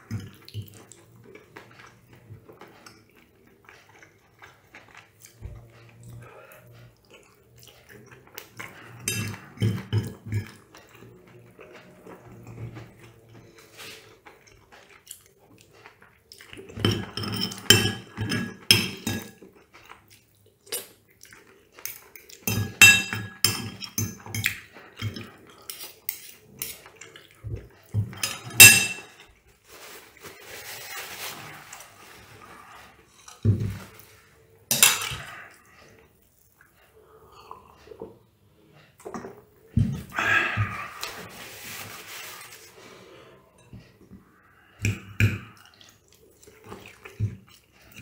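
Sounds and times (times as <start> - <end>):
cutlery clinking on a plate: 9.0 - 10.6, 16.8 - 19.4, 21.9 - 26.8, 28.0 - 29.2, 34.7 - 35.3.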